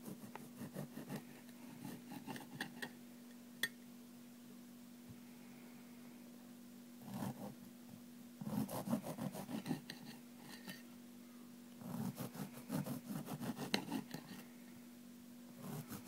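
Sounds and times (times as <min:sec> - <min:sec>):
bread knife sawing bread: 0:00.0 - 0:02.6, 0:08.4 - 0:10.0, 0:11.8 - 0:14.4, 0:15.6 - 0:16.0.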